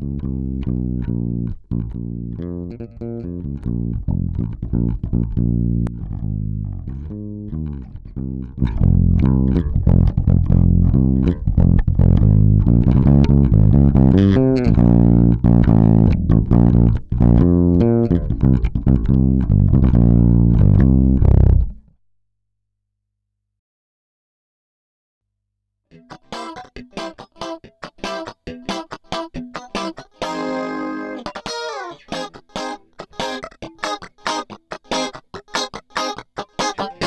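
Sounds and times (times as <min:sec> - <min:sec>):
bass guitar line: 0:00.0 - 0:22.0.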